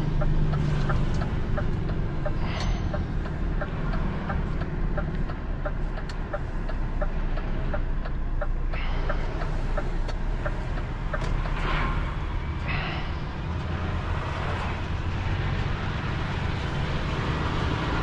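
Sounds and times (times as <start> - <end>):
turn signal relay ticking: 0.0 - 11.6
diesel truck engine running: 0.0 - 18.0.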